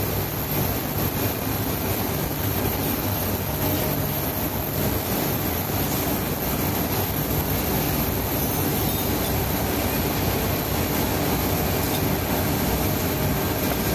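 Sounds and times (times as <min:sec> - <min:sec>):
machine blowers running: 0:00.0 - 0:13.9.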